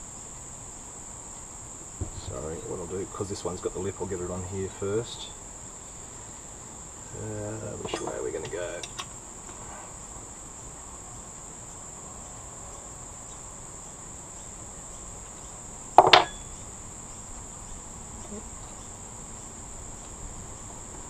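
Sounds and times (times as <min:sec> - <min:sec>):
crickets chirring: 0:00.0 - 0:21.0
metal clank: 0:07.8 - 0:09.1, 0:16.0 - 0:16.6.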